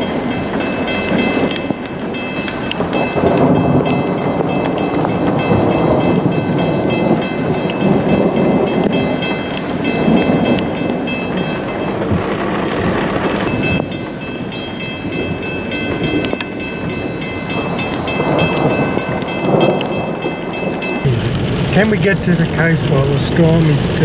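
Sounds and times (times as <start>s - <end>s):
heavy rain falling: 0.0s - 24.0s
thunder rumbling: 0.0s - 24.0s.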